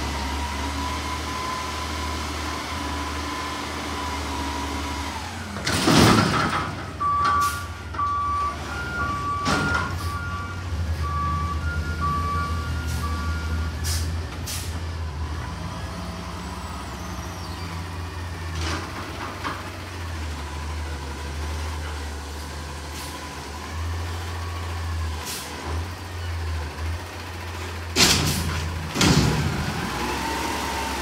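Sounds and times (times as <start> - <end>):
garbage truck engine running: 0.0 - 31.0
reversing alarm beeping: 7.0 - 14.1
air brake hisses: 13.8 - 14.8.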